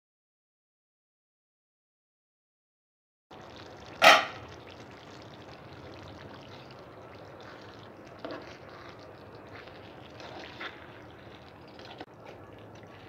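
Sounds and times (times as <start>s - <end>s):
curry bubbling in a pan: 3.3s - 13.0s.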